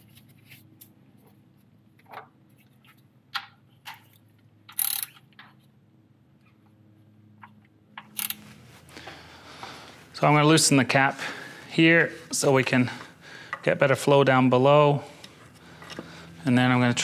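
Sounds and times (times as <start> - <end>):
hand ratchet clicking: 4.7 - 5.2, 8.0 - 8.4.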